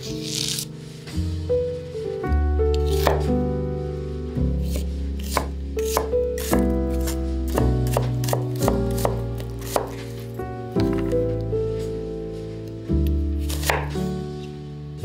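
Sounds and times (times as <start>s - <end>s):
soft background music: 0.0s - 15.0s
knife slicing onion on board: 0.2s - 0.7s, 2.8s - 3.3s, 4.6s - 10.1s, 13.4s - 14.0s.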